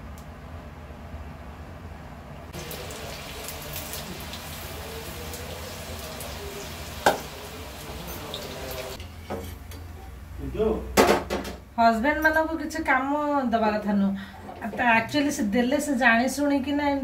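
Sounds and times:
food deep-frying in oil: 0:02.5 - 0:09.0.

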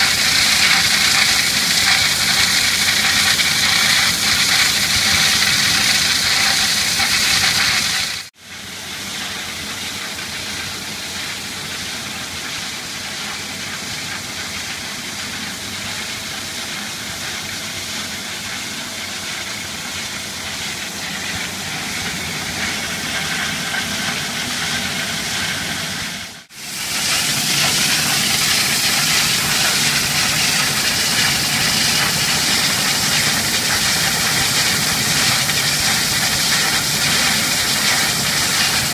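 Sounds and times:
machine running: 0:00.0 - 0:08.3, 0:19.5 - 0:38.9.

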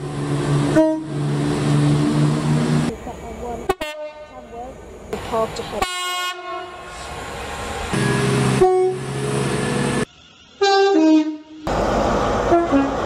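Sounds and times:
passing train rumble: 0:00.0 - 0:13.0
train horns: 0:00.5 - 0:02.6, 0:03.7 - 0:04.5, 0:05.8 - 0:06.9, 0:07.9 - 0:10.0, 0:10.6 - 0:11.7, 0:12.4 - 0:13.0.

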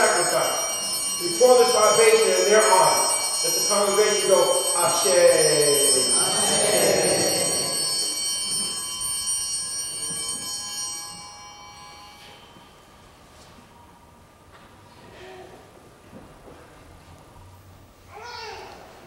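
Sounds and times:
hand bell ringing: 0:00.0 - 0:12.9.

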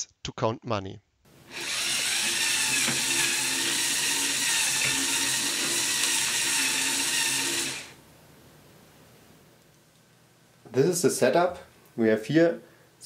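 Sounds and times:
toy motors and gears whirring: 0:01.5 - 0:08.0.

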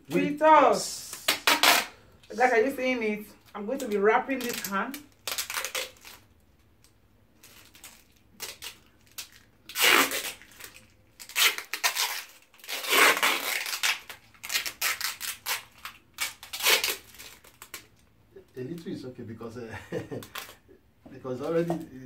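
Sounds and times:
sticky tape ripping off roll: 0:01.0 - 0:02.0, 0:03.7 - 0:06.4, 0:07.4 - 0:18.0, 0:20.1 - 0:20.6.

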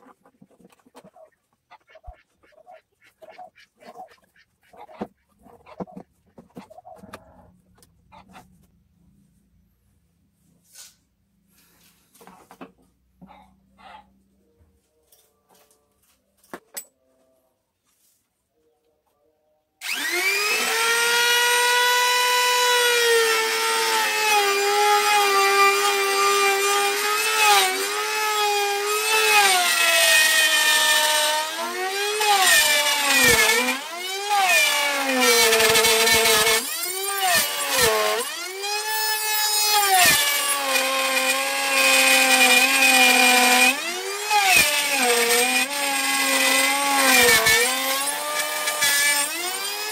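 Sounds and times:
router whining and cutting wood: 0:19.8 - 0:49.9.

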